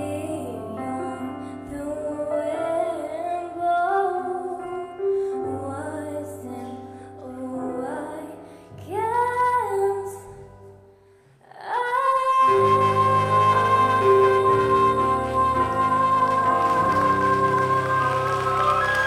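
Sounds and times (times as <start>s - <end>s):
woman singing slow song: 0.0s - 10.6s, 11.4s - 19.0s
soft instrumental accompaniment: 0.0s - 19.0s.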